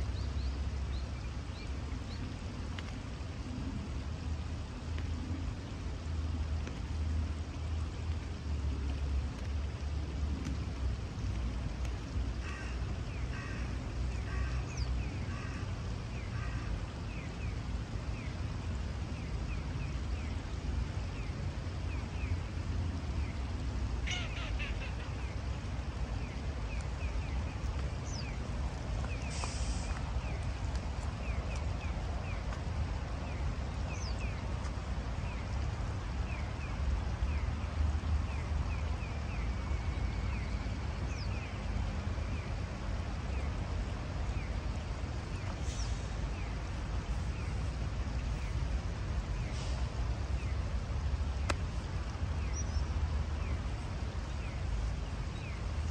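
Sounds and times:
shallow river water rushing: 0:00.0 - 0:55.9
short bird calls: 0:24.0 - 0:25.2
short hiss: 0:29.2 - 0:30.0.

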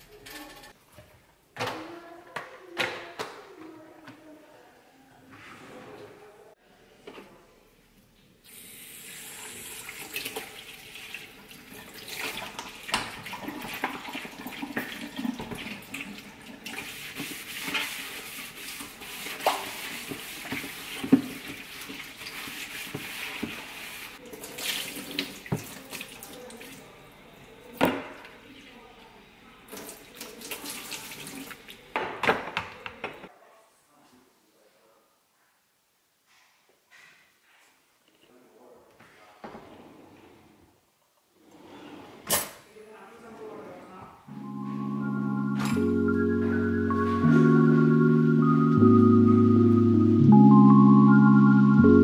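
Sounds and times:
sponge scrubbing plastic tray: 0:15.4 - 0:24.2.

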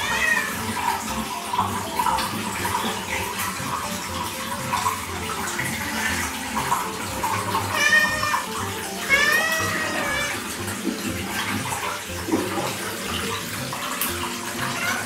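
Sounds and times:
tap water running into bathtub: 0:00.0 - 0:15.0.

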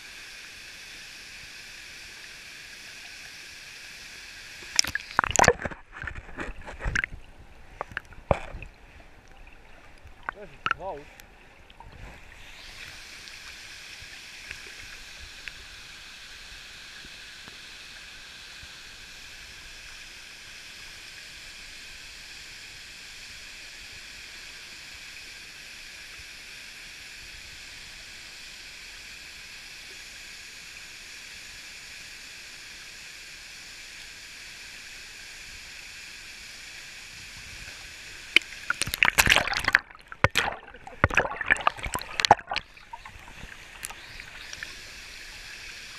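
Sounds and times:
water splashing over rocks: 0:04.6 - 0:09.2, 0:09.8 - 0:13.0, 0:38.1 - 0:45.9.

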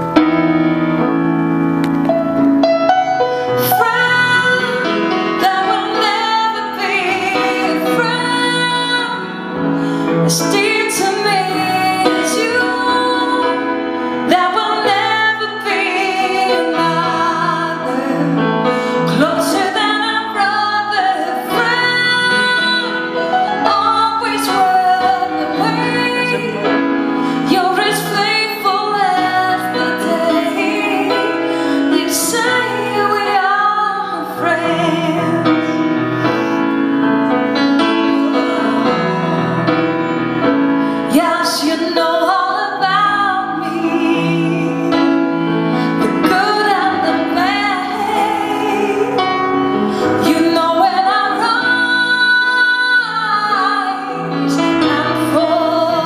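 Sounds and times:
woman singing gospel: 0:27.4 - 0:35.4, 0:41.1 - 0:45.2, 0:46.0 - 0:49.4, 0:50.2 - 0:56.0.

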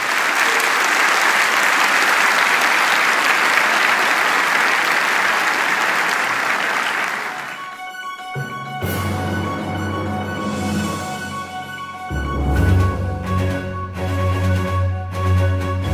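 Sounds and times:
audience applauding: 0:00.0 - 0:08.3
music: 0:07.4 - 0:15.9.

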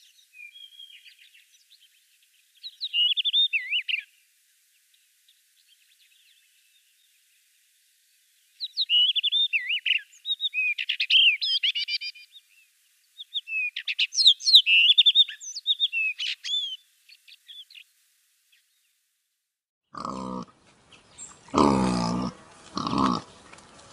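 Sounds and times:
blackbird whistles and trills: 0:02.6 - 0:04.0, 0:08.6 - 0:12.3, 0:13.3 - 0:16.8
faint bird chips: 0:13.2 - 0:17.9.

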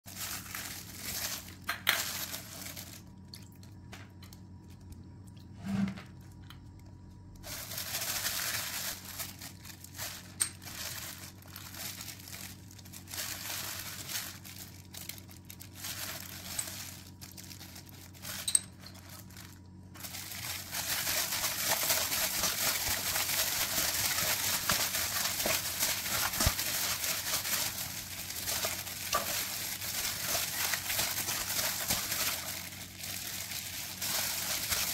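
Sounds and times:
plastic glove crinkling: 0:00.0 - 0:05.1, 0:06.3 - 0:34.9
hand mixing raw meat in bowl: 0:19.2 - 0:34.9.

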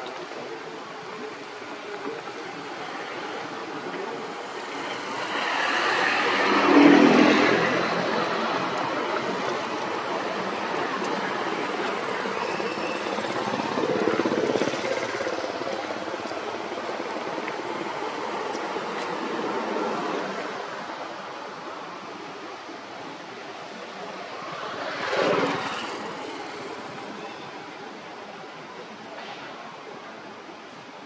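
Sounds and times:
vehicle driving past: 0:05.0 - 0:08.7.

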